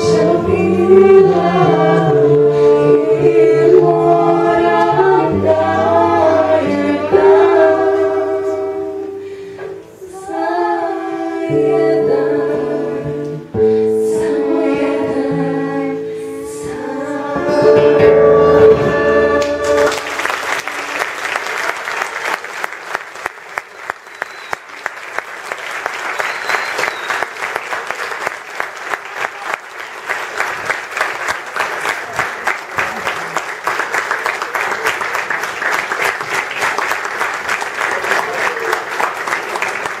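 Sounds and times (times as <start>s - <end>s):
song with violin guitar and voices: 0.0s - 20.1s
audience applauding: 19.4s - 40.0s.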